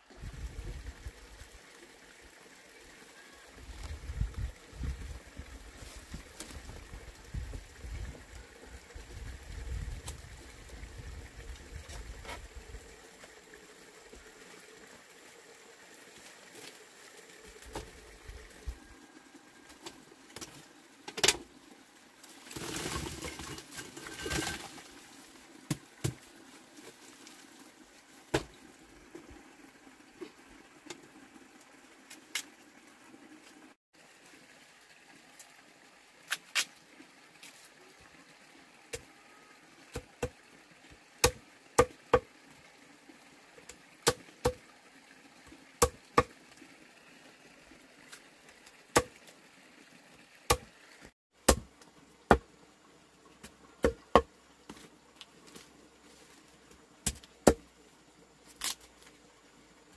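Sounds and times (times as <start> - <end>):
machete chopping bamboo on wood: 41.2 - 42.3, 44.0 - 44.6, 45.8 - 46.3, 48.9 - 49.2, 51.4 - 51.7, 53.8 - 54.3, 57.0 - 57.7.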